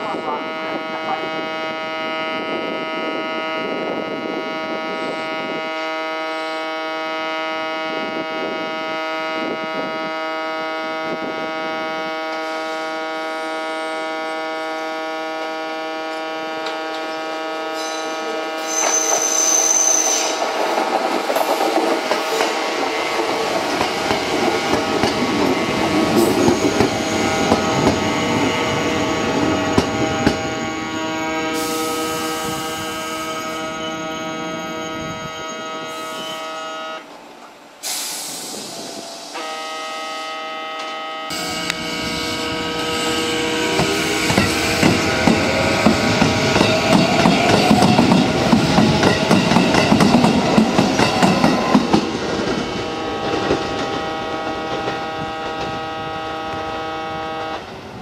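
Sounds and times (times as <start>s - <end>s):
train wheels squealing: 12.4s - 14.8s, 17.7s - 20.6s, 25.5s - 37.0s, 41.3s - 53.0s
train wheels clattering on rails: 18.8s - 30.6s, 42.8s - 55.9s.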